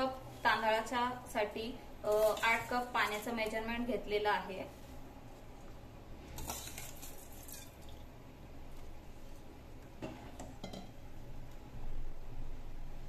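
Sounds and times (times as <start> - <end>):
spoon scraping metal pot: 2.1 - 3.3.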